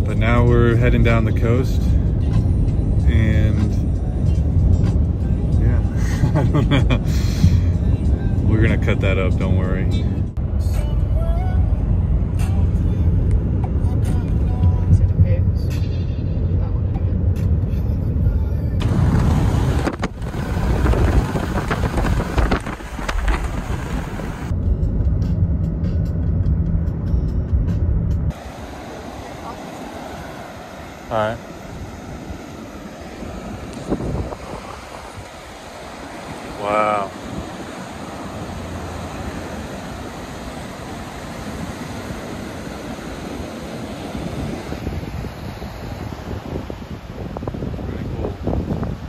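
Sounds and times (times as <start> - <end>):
car engine and road noise: 0.0 - 49.0
ocean surf: 18.8 - 24.5, 28.3 - 49.0
wind buffeting microphone: 18.8 - 24.5, 28.3 - 49.0.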